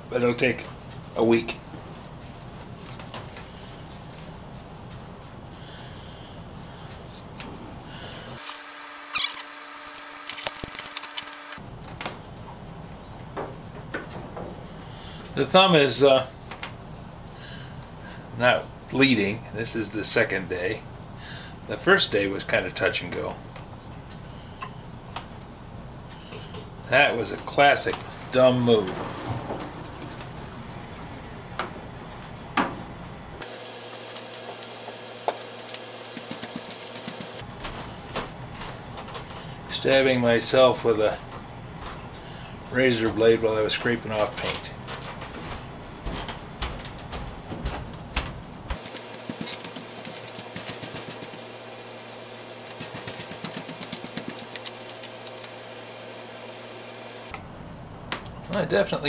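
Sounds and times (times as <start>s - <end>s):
steady low hum: 0.0s - 59.0s
stick scraping filler: 52.2s - 55.5s.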